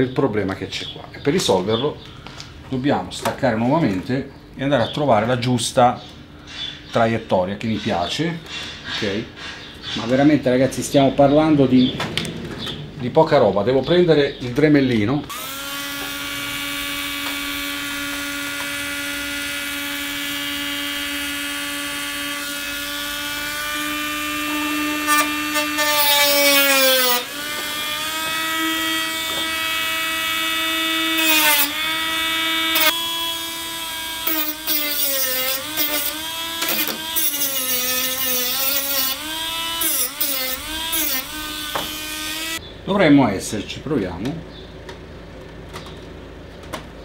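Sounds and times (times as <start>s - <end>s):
rotary tool whining: 15.3s - 42.6s.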